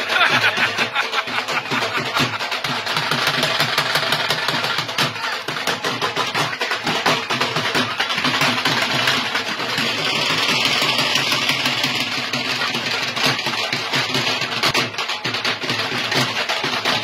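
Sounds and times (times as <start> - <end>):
crowd noise: 0.0 - 17.0
drum beaten in fast roll: 0.0 - 17.0.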